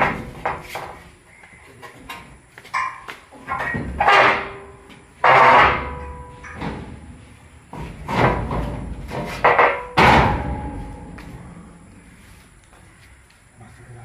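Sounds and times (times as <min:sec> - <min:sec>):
heavy metal clanks and scrapes: 0:02.8 - 0:11.8.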